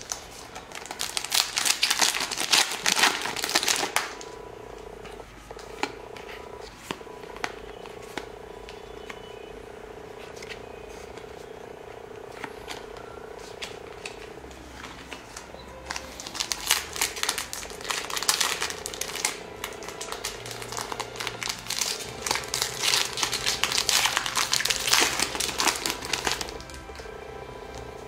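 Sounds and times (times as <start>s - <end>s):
foil pack crinkling and tearing: 0.0s - 4.3s, 15.9s - 27.1s.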